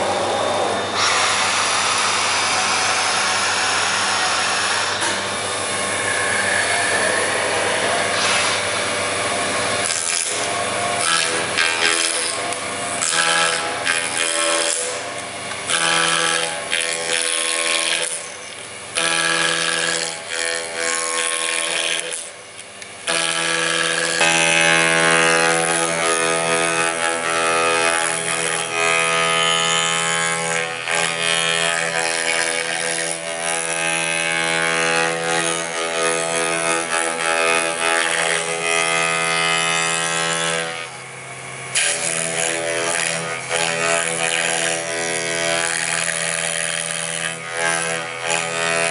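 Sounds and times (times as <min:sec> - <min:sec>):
milling spindle whine: 0:00.0 - 0:20.8
end mill cutting wood: 0:00.0 - 0:48.9.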